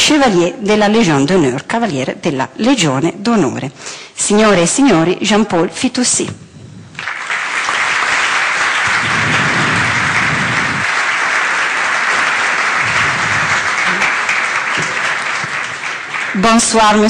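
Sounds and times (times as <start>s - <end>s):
audience applauding: 7.0s - 17.0s.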